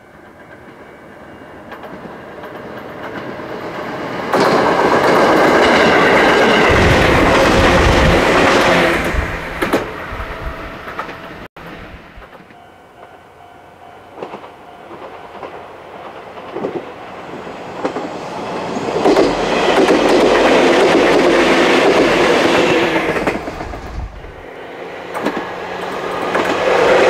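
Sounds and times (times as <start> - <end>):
electric train passing: 0.0 - 27.0
wheels clicking over rail joints: 1.6 - 10.0, 14.1 - 16.9, 25.1 - 27.0.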